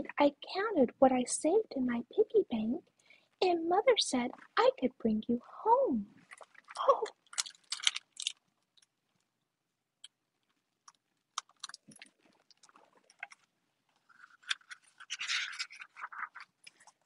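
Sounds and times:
book pages rustling: 0:11.4 - 0:17.0.

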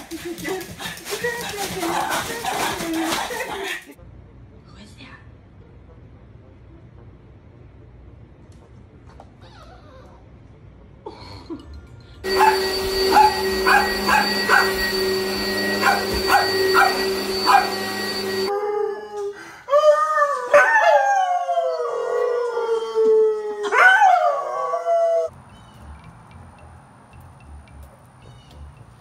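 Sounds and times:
vacuum cleaner hum and whine: 0:12.2 - 0:18.5
small dog barking: 0:12.3 - 0:15.0, 0:15.6 - 0:18.4
dog howling: 0:12.3 - 0:25.3.

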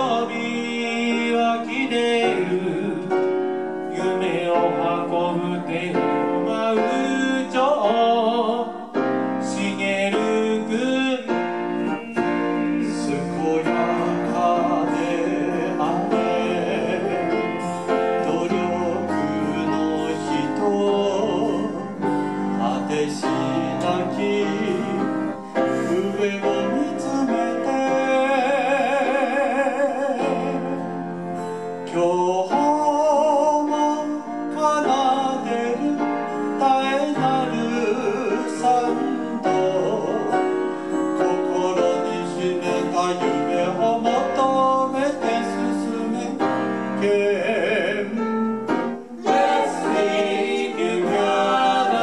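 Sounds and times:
men singing into microphones: 0:00.0 - 0:03.3, 0:03.9 - 0:31.1, 0:31.9 - 0:52.0
electric keyboards: 0:00.0 - 0:52.0.

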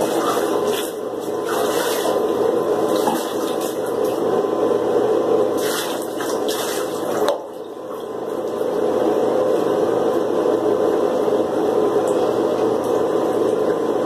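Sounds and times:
water splashing: 0:00.0 - 0:04.2, 0:05.6 - 0:07.6
water running into bathtub: 0:00.0 - 0:04.5, 0:05.4 - 0:10.3.

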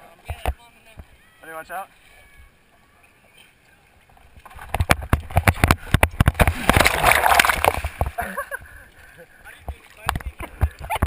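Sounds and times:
water splashing and slapping: 0:04.0 - 0:11.0.

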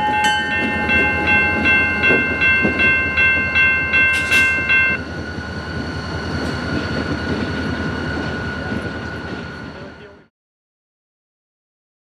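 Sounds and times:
crossing warning bell ringing: 0:00.0 - 0:05.1.

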